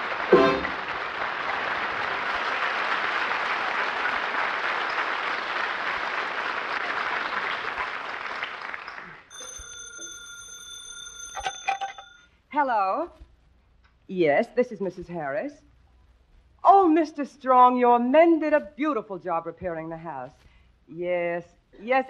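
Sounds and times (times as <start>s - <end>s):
studio audience applauding: 0.0s - 9.3s
telephone bell ringing: 9.3s - 12.4s.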